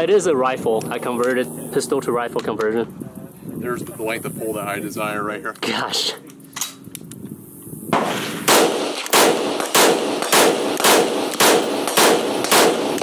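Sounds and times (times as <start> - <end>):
rifle shots with echo: 7.9 - 13.0.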